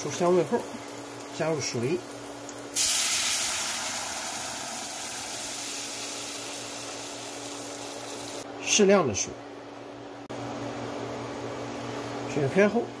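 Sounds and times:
water sizzling in hot oil: 0.0 - 8.4.

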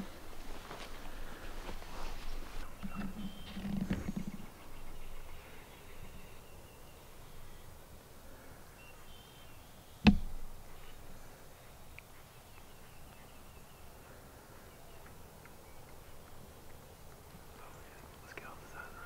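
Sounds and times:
sharp knock: 10.0 - 10.4.

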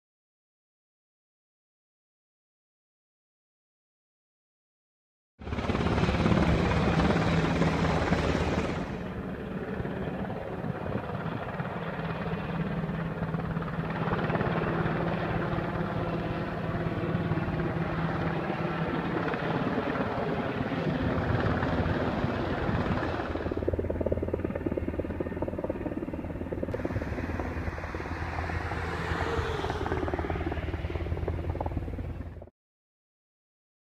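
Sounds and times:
helicopter flying overhead: 5.4 - 32.5.

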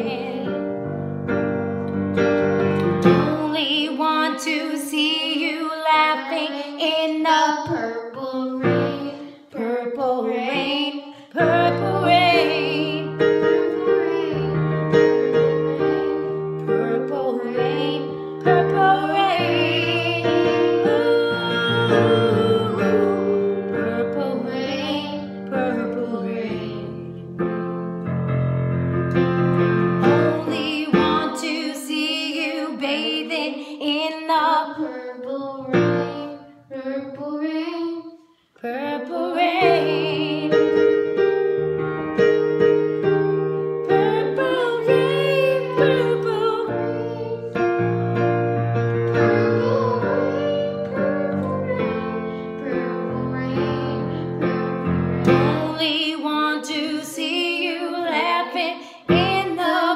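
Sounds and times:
boy singing into microphone: 0.0 - 0.7, 3.1 - 27.1, 30.0 - 40.8, 43.9 - 47.6, 49.1 - 59.9
woman singing along: 0.0 - 0.7, 3.1 - 14.5, 15.4 - 27.0, 30.0 - 34.9, 38.6 - 40.9, 43.9 - 47.3, 55.2 - 59.9
electric keyboard chords: 0.0 - 3.4, 11.4 - 31.2, 39.6 - 55.7.

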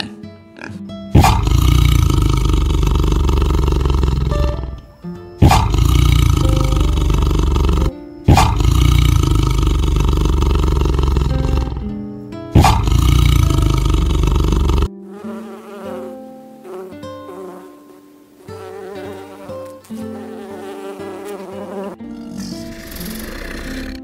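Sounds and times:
tiger roaring: 1.2 - 12.0, 12.6 - 14.9, 22.1 - 24.0.

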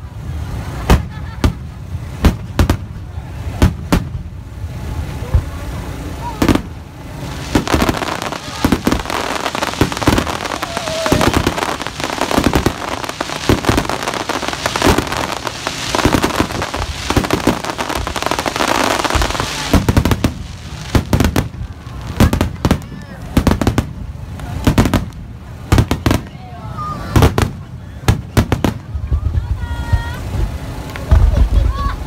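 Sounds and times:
firework shells bursting: 6.4 - 26.3.

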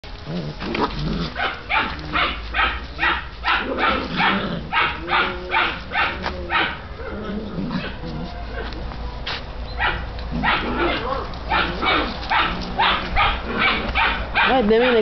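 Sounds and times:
dog barking: 1.4 - 7.1, 9.8 - 15.0.

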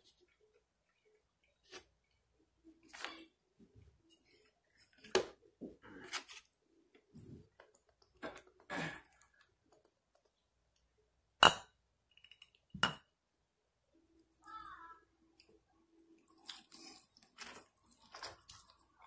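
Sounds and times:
wet tearing of meat: 16.3 - 19.0.

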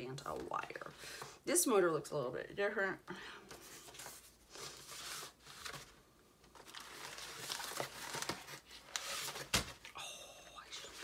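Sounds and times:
plastic bag rustling: 6.6 - 9.9.

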